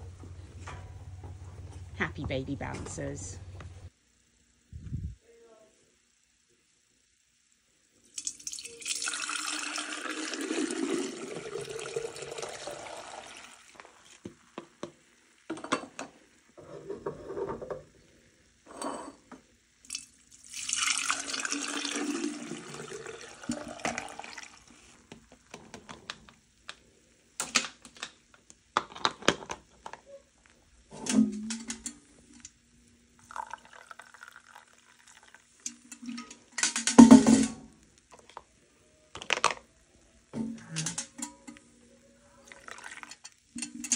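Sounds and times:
milk pouring through a strainer: 8.1s - 14.2s, 19.9s - 25.0s, 33.2s - 36.3s, 42.4s - 43.3s
containers clicking and knocking: 39.2s - 39.7s.

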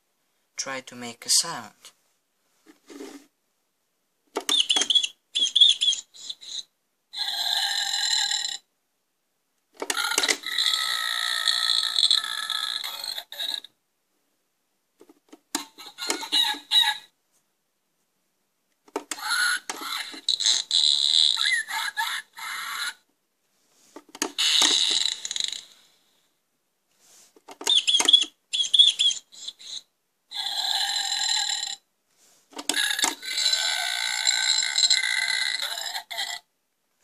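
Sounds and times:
toy electronic sound effects: 4.4s - 8.6s, 9.8s - 13.7s, 15.6s - 17.1s, 19.1s - 22.9s, 24.3s - 25.7s, 27.6s - 31.8s, 32.6s - 36.4s.

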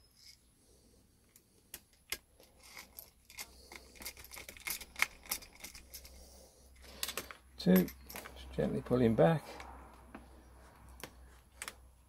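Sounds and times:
plastic and metal parts clicking: 1.2s - 6.2s.

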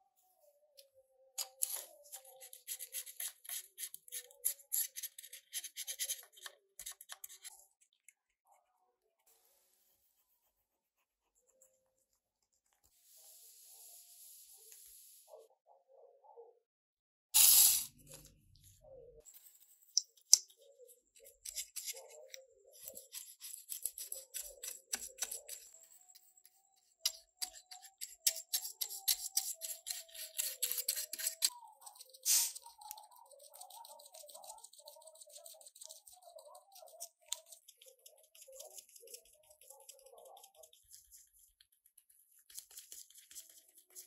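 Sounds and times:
paintbrush scrubbing on plastic: 1.6s - 7.8s, 19.3s - 44.0s.

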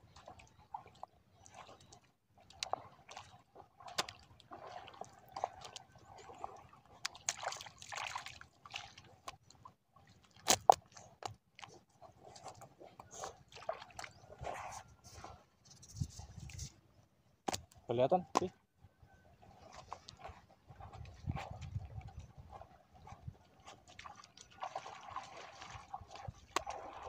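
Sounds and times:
squelching in wet mud: 0.0s - 15.6s, 17.5s - 27.0s
sharp wet slaps: 3.8s - 5.8s, 7.0s - 9.4s, 10.4s - 11.7s, 17.4s - 17.8s, 24.0s - 27.0s.

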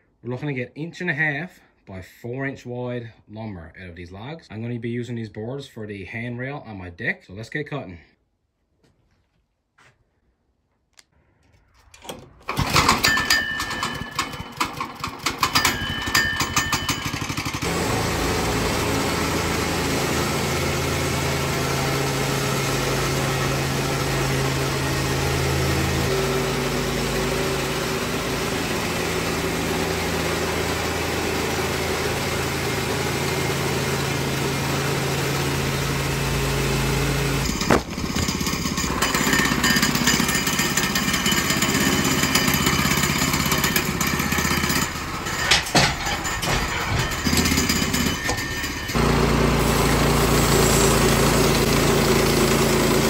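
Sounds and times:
engine pull-started and running: 11.5s - 53.0s.

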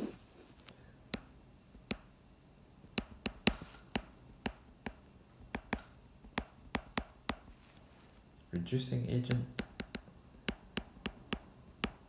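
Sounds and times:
stylus tapping on tablet screen: 1.1s - 2.1s, 2.8s - 7.6s, 9.2s - 12.0s.

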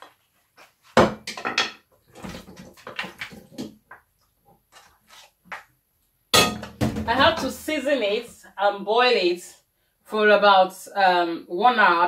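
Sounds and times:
meat thudding into a pot: 6.4s - 7.1s.

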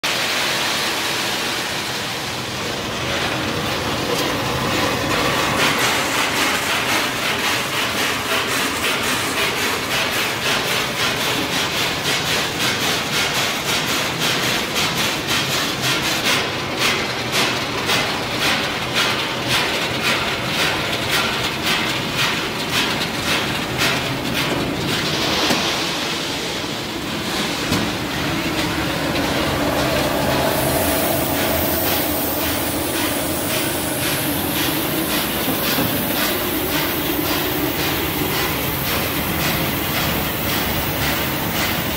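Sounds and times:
machine rhythmic clatter: 0.1s - 41.9s.

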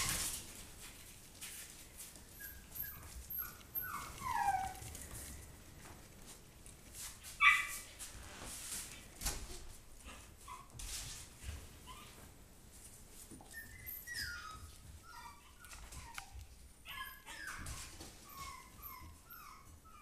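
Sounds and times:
puppy whimpering: 2.1s - 5.5s, 7.4s - 7.9s, 13.4s - 20.0s.

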